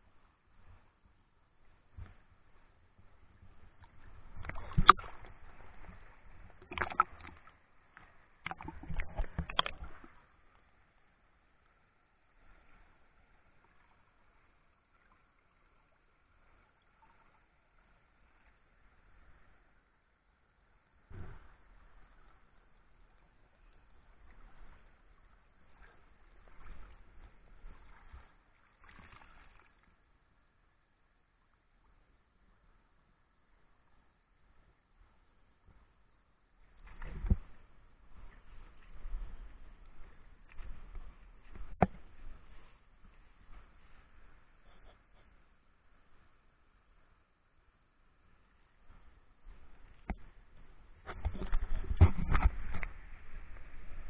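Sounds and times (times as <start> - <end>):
water trickling in rocky stream: 3.2 - 32.2
river water splashing against camera: 3.8 - 10.3, 21.2 - 30.0, 49.5 - 54.0.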